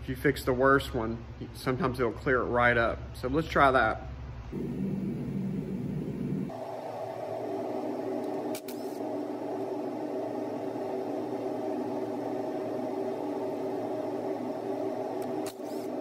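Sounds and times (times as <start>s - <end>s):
heater humming: 4.5s - 16.0s.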